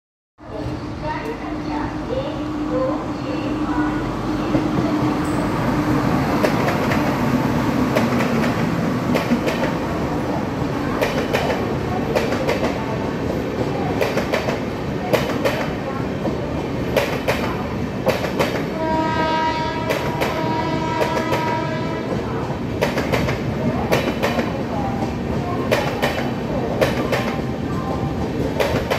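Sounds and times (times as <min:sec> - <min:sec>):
train rumble: 0:00.4 - 0:28.9
train horn: 0:18.7 - 0:22.2.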